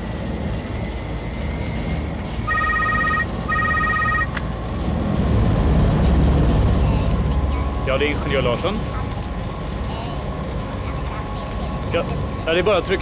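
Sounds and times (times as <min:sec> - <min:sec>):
low workshop hum: 0:00.0 - 0:13.0
telephone warbling rings: 0:02.5 - 0:04.4.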